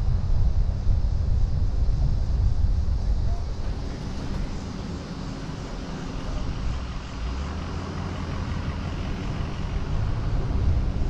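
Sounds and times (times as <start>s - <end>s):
tyre and road noise: 0.0s - 11.0s
wind buffeting microphone: 0.0s - 11.0s.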